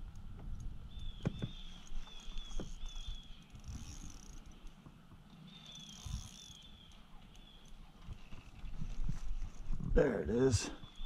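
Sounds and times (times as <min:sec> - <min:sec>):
light clicks: 0:00.0 - 0:08.7.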